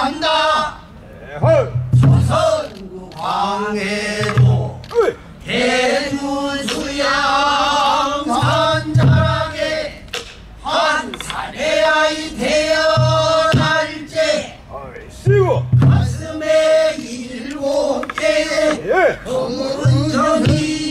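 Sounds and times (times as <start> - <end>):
low thumps: 1.4 - 2.6, 8.4 - 11.3, 12.9 - 13.9, 15.3 - 16.4, 19.8 - 20.9.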